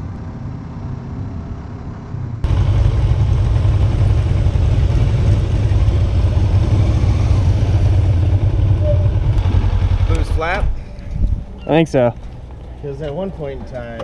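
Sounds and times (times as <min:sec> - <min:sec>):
motorcycle engine running: 0:02.4 - 0:10.6
wind noise: 0:08.8 - 0:11.7.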